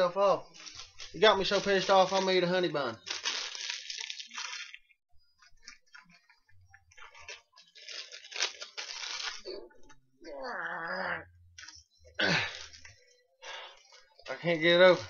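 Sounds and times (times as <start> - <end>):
plastic wrapper crinkling: 0.4 - 5.0, 6.9 - 9.6.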